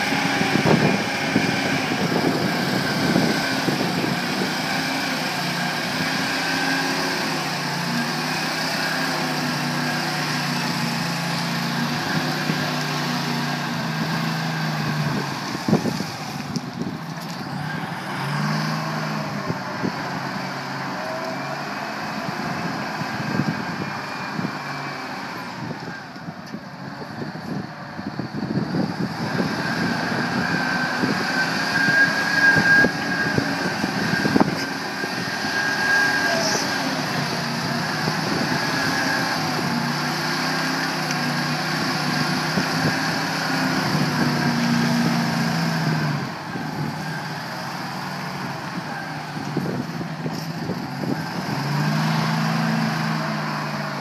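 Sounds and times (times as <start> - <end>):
wheel loader diesel engine: 0.0 - 54.0.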